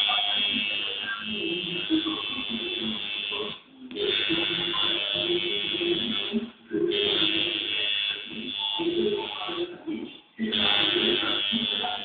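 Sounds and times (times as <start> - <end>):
tattoo machine buzzing: 0.0 - 12.0.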